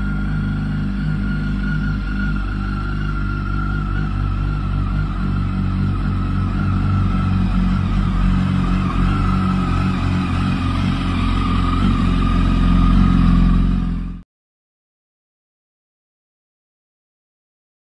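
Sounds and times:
motorcycle engine idling: 0:00.0 - 0:14.2.

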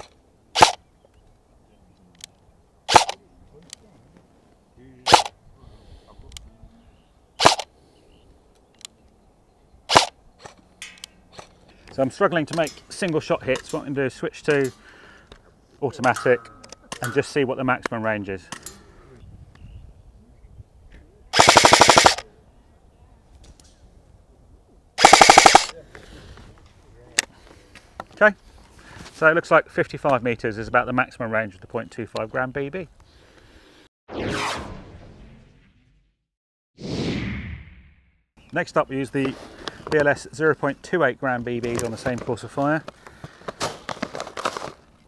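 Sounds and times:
airsoft rifle shots: 0:00.6 - 0:00.8, 0:02.9 - 0:03.2, 0:05.1 - 0:05.3, 0:07.4 - 0:07.7, 0:09.9 - 0:10.1, 0:21.4 - 0:22.2, 0:25.0 - 0:25.7.

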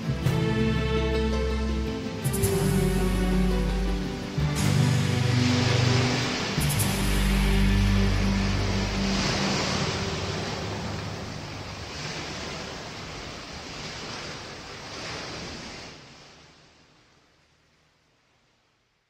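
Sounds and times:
low music notes: 0:00.0 - 0:11.7
waves washing: 0:00.0 - 0:17.5.

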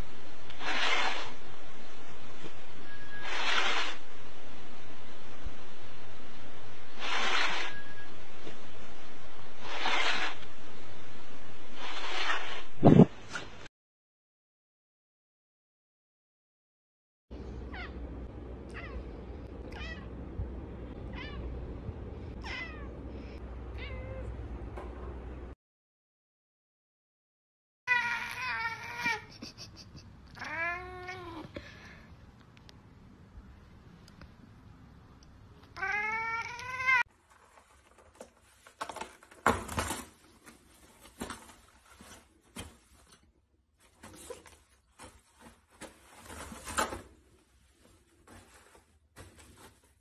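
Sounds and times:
cat meowing: 0:18.7 - 0:19.0, 0:19.7 - 0:20.1, 0:21.1 - 0:21.5, 0:22.4 - 0:23.0, 0:23.7 - 0:24.3, 0:27.9 - 0:29.3, 0:30.4 - 0:31.5, 0:35.8 - 0:37.0
toilet paper rustling: 0:37.1 - 0:50.0.

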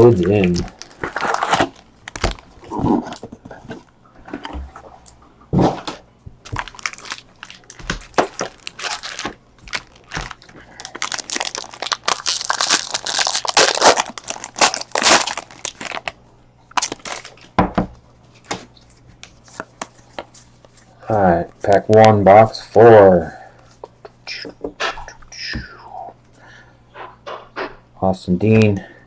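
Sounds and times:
foil wrapper tearing and crinkling: 0:00.0 - 0:02.8, 0:06.4 - 0:17.4.

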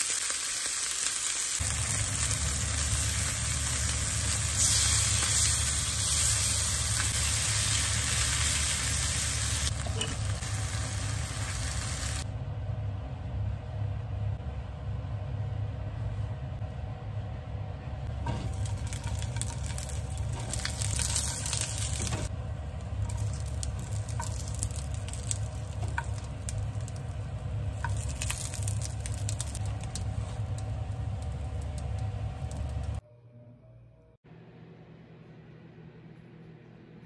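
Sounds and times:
sausages sizzling in oil: 0:00.0 - 0:12.2, 0:18.2 - 0:33.0
steady low hum: 0:01.6 - 0:37.0.

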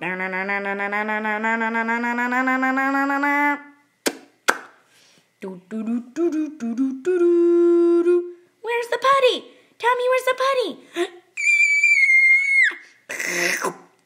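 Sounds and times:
choppy vocal noises: 0:00.0 - 0:03.7
person humming: 0:00.0 - 0:03.8, 0:05.4 - 0:08.4
person making buzzing vocal effect: 0:00.0 - 0:04.2, 0:13.1 - 0:13.9.

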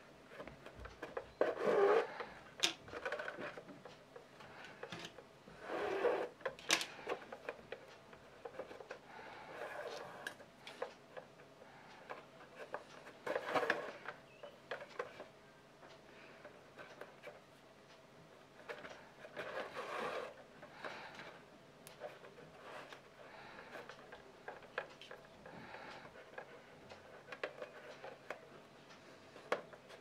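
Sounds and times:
leather rubbing and scraping: 0:01.4 - 0:02.1
small clicks and taps: 0:06.3 - 0:30.0.

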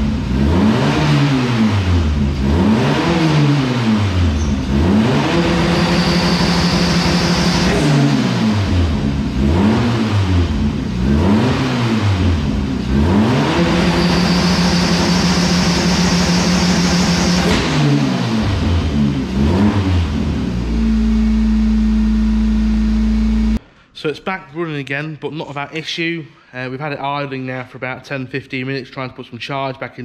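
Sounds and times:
race car engine revving: 0:00.0 - 0:23.6
high engine whine: 0:01.8 - 0:23.6.

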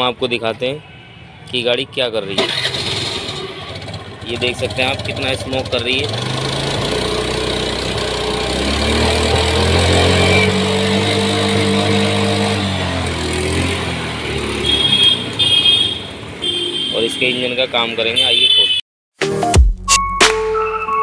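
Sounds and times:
scooter engine revving: 0:02.3 - 0:16.9.

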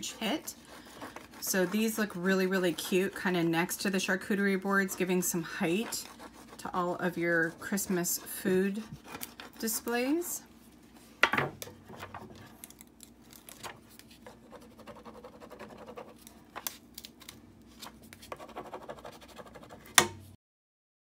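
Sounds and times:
burnishing tool scratching sheet: 0:00.0 - 0:10.2, 0:14.2 - 0:16.3, 0:18.3 - 0:20.0.

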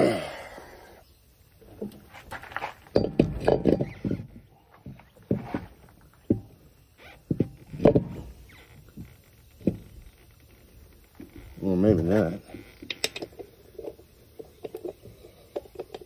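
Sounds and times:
heavy tyre knocking and scraping: 0:01.6 - 0:12.5.

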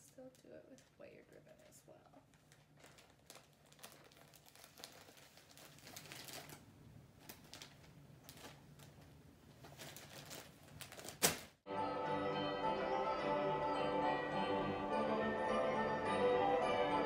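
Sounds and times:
wrapping paper crinkling: 0:00.0 - 0:11.6
music: 0:11.7 - 0:17.0.

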